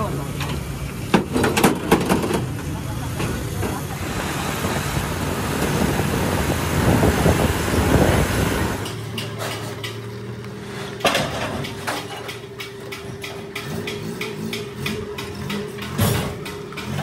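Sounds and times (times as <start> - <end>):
highway road and wind noise: 0.0 - 17.0
pickup engine running: 0.0 - 17.0.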